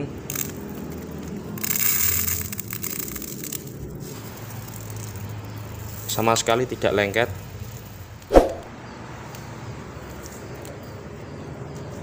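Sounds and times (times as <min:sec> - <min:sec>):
rice grains pattering into basin: 0:00.0 - 0:08.2.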